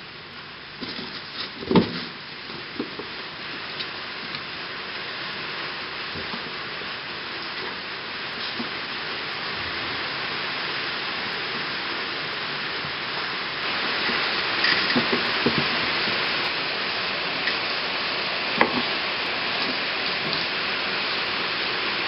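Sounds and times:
steady rain hiss: 0.0s - 22.0s
kittens knocking cardboard box: 0.8s - 2.1s.

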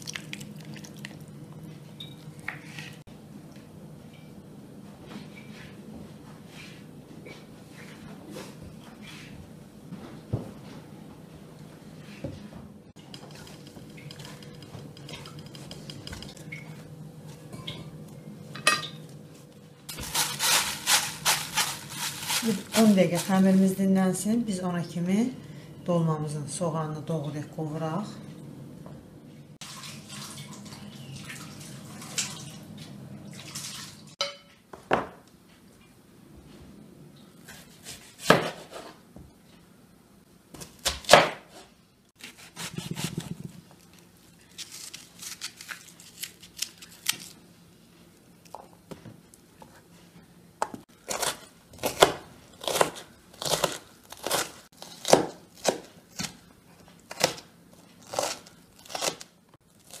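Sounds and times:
knife chopping onion on wooden board: 37.5s - 39.0s, 42.2s - 43.6s.

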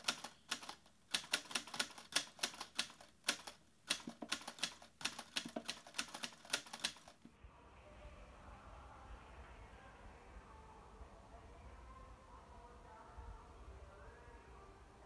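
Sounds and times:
typewriter key clicks: 0.0s - 7.1s.

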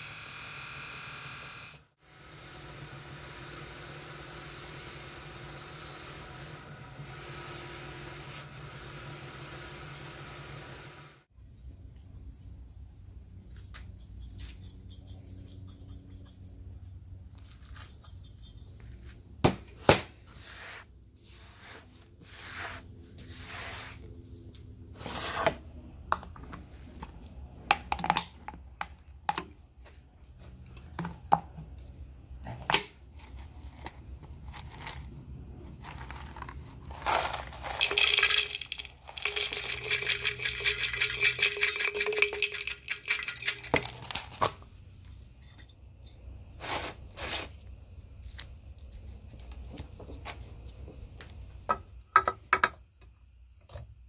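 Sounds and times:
plastic crinkling: 35.7s - 44.4s
liquid pouring through funnel: 36.8s - 44.2s.

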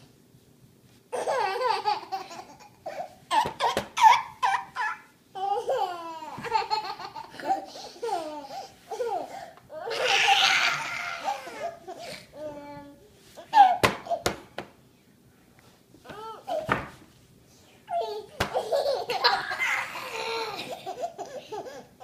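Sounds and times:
baby laughing: 1.1s - 12.1s, 17.9s - 22.0s.

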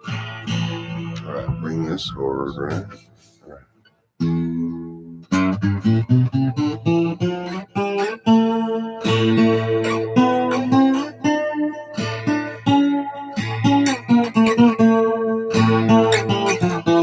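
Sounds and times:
acoustic guitar playing: 0.0s - 17.0s.

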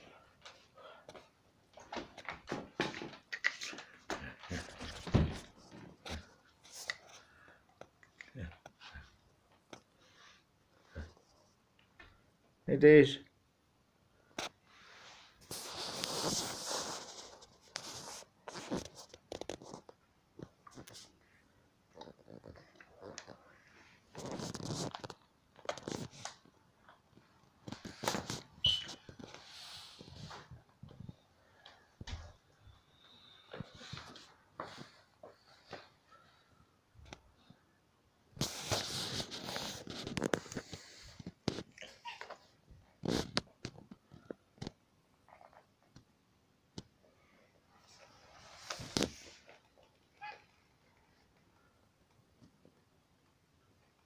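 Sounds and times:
brief high squeak: 28.6s - 29.0s.

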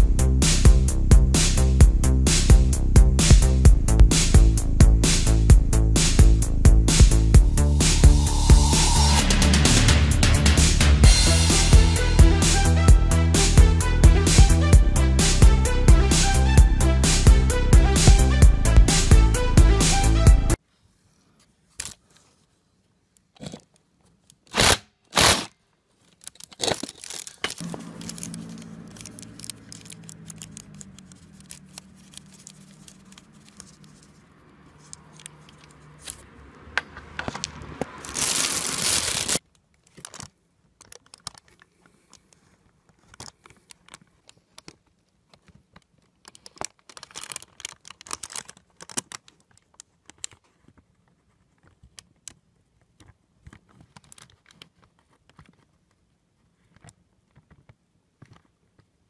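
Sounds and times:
plastic sheeting crinkling: 25.2s - 34.2s, 38.0s - 41.5s, 46.3s - 50.6s.

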